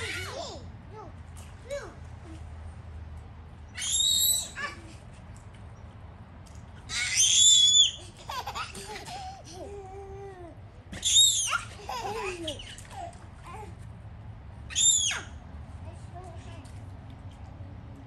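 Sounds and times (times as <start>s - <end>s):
toddler squealing: 3.8s - 4.9s, 6.9s - 8.6s, 11.0s - 12.9s, 14.7s - 15.4s
child babbling: 9.4s - 10.6s.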